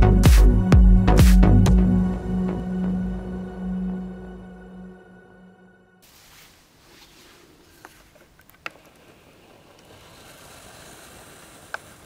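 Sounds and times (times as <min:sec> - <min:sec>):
faint room noise: 0:06.0 - 0:12.0.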